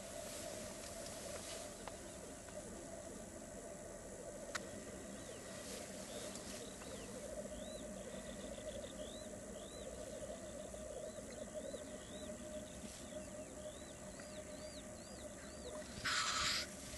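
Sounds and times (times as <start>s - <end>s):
black grouse bubbling chorus: 0.0s - 16.9s
grouse hisses: 15.8s - 16.9s.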